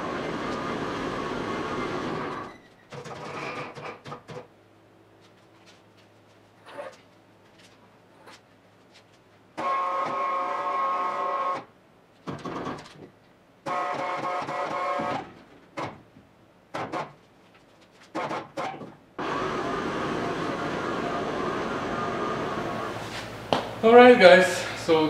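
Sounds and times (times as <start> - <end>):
electric hoist motor running: 0.0 - 2.5, 9.6 - 11.7, 13.6 - 15.3, 19.2 - 23.0
loud steady noise: 0.0 - 2.5, 19.2 - 25.0.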